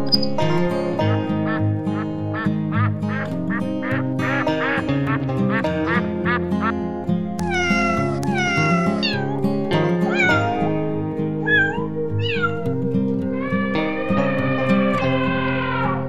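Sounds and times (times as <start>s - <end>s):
background music: 0.0s - 16.0s
duck quacks: 1.0s - 6.8s
cat meowing: 7.4s - 9.4s, 10.1s - 10.8s, 11.4s - 16.0s.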